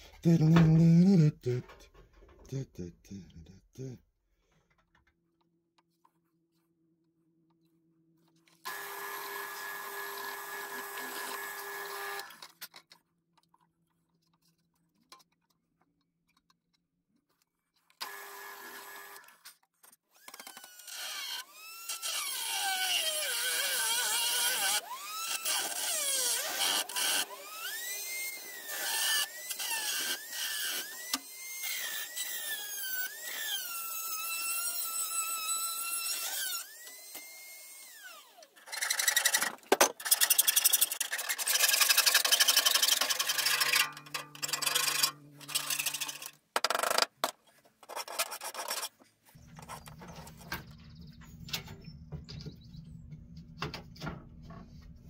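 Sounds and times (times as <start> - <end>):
drill bit cutting copper sheet: 8.6 - 12.5, 18.0 - 19.4, 20.2 - 47.0
drill press motor humming: 8.7 - 12.4, 18.0 - 19.2.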